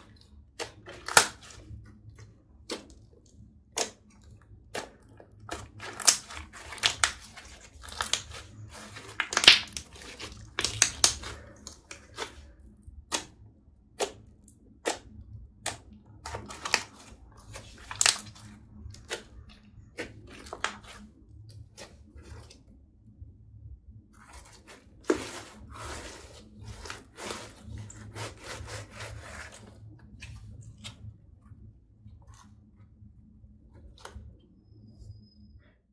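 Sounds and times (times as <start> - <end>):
slime crackling and popping: 0.6 - 1.7, 3.7 - 12.4, 13.0 - 21.1.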